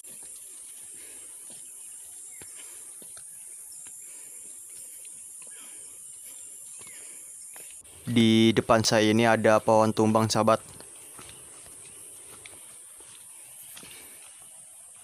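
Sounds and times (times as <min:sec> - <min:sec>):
bird chirps: 0:00.0 - 0:09.3
footsteps on a dirt trail: 0:00.0 - 0:15.0.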